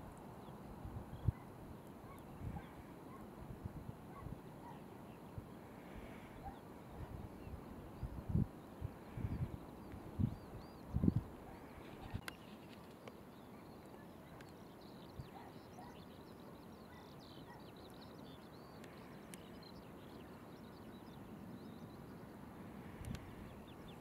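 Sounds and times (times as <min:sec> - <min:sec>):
light clicks: 0:23.0 - 0:23.3.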